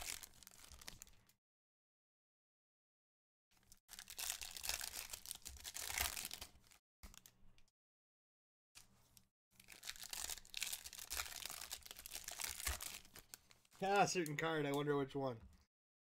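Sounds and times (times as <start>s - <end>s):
card packs crinkling and rustling: 3.9s - 7.2s, 9.6s - 14.9s.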